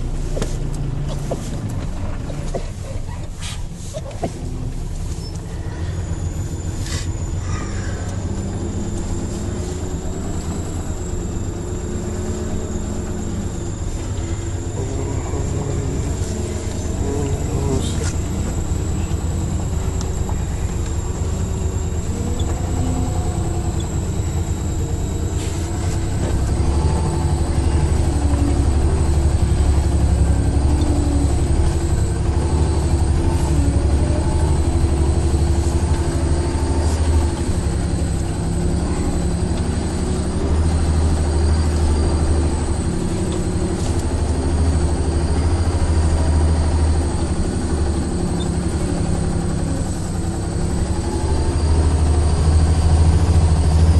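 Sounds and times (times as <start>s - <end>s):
truck engine running: 0.0s - 53.9s
knocks and rattles in cab: 0.4s - 4.8s.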